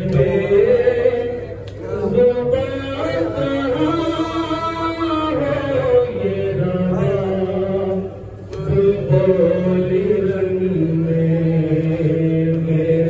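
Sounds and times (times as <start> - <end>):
man chanting a lament: 0.0 - 13.0.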